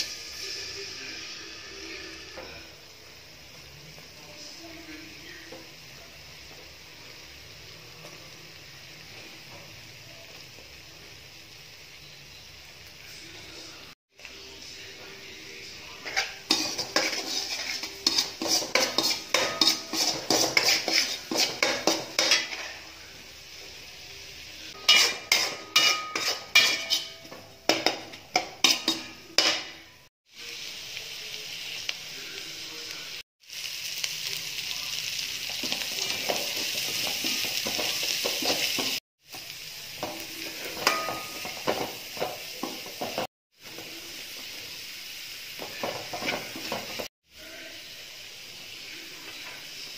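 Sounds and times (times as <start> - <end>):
vegetables sizzling in oil: 0.0 - 49.9
metal spoon scraping a wok: 15.9 - 22.8, 24.7 - 29.9.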